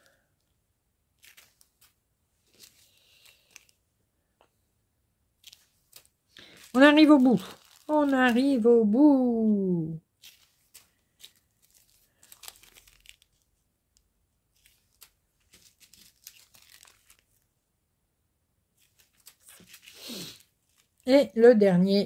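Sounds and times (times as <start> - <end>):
plastic zip-lock bags crinkling: 1.2 - 3.8, 5.4 - 8.6, 10.2 - 17.5, 18.8 - 21.1.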